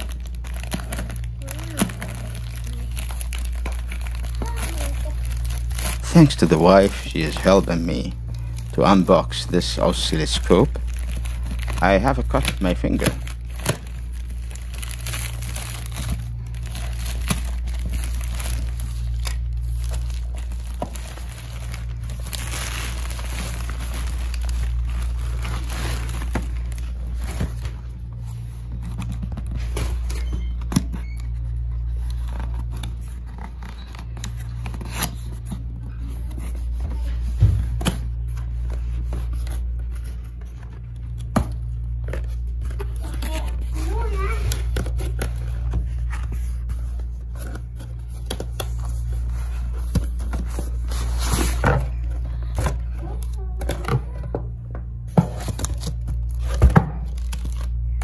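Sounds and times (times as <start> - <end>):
low hum: 0.0 - 58.0
plastic and bubble wrap crinkling: 0.0 - 58.0.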